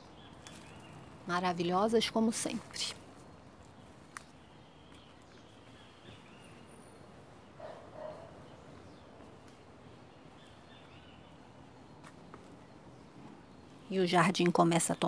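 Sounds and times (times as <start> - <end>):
faint outdoor ambience: 0.0 - 15.0
dog barking: 7.6 - 8.4.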